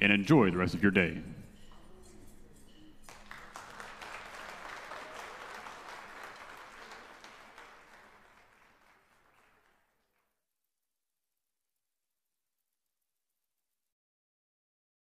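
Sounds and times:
audience applauding: 0:03.0 - 0:10.3.

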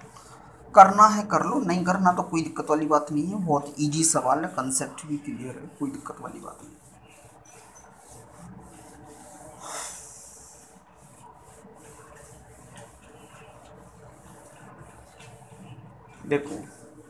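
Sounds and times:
eraser rubbing on whiteboard: 0:00.0 - 0:17.0
brief hiss of eraser: 0:09.6 - 0:10.6.

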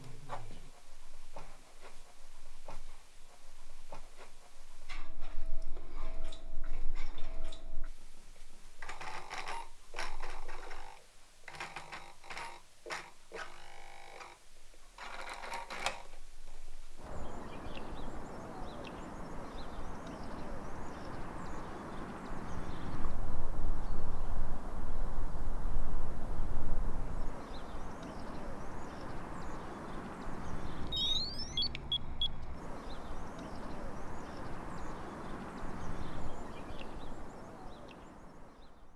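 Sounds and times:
small birds chirping: 0:17.0 - 0:23.1, 0:27.1 - 0:38.9
high electronic beeps: 0:30.9 - 0:32.4.

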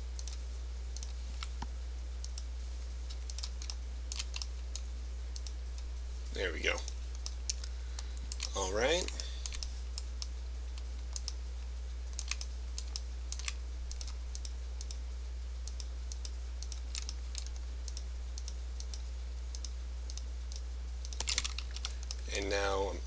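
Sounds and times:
low electrical hum: 0:00.0 - 0:23.0
mouse and keyboard clicking: 0:03.3 - 0:05.6, 0:12.2 - 0:15.0.

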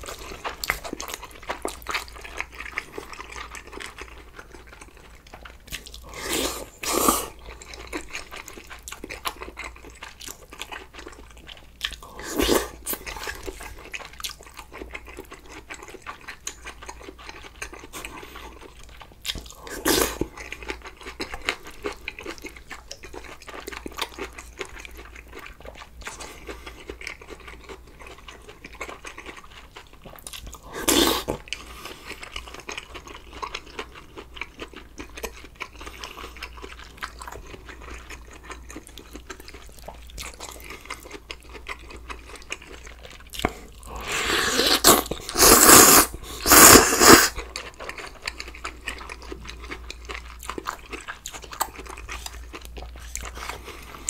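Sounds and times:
man chewing food: 0:00.0 - 0:54.0
wet mouth clicks and crunches: 0:00.3 - 0:04.0, 0:38.8 - 0:54.0.

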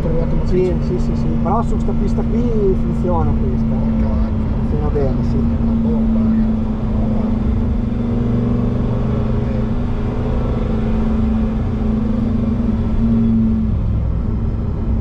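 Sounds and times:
car engine drone from cabin: 0:00.0 - 0:15.0.

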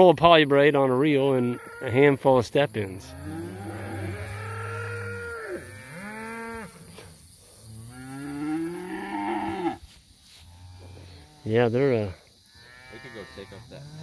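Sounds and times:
cattle mooing: 0:03.0 - 0:06.8, 0:07.8 - 0:09.8, 0:12.6 - 0:14.0.

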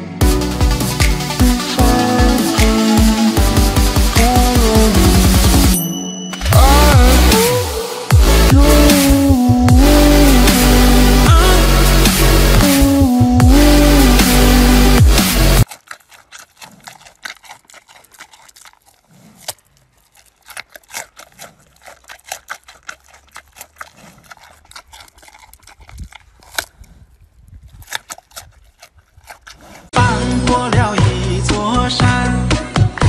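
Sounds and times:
loud music: 0:00.0 - 0:15.6, 0:30.0 - 0:33.0
panda chewing pumpkin: 0:06.4 - 0:30.0.

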